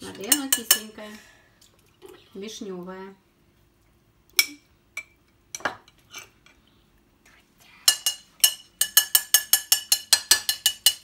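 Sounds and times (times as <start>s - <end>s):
metal spoon clinking glass jar: 7.9s - 11.0s.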